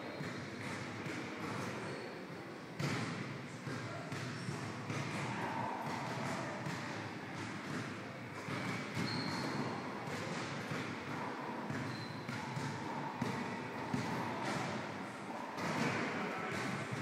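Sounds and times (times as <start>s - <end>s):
basketballs bouncing on gym floor: 0.1s - 2.0s, 2.8s - 17.0s.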